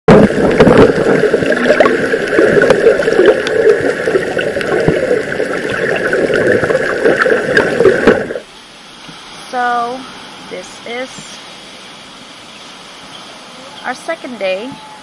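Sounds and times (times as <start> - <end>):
water gurgling underwater: 0.1 - 8.5.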